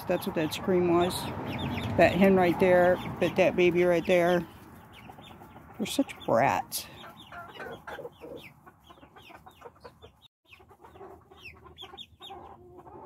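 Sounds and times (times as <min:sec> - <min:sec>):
chickens clucking: 0:00.0 - 0:13.0
chicks cheeping: 0:00.0 - 0:13.0.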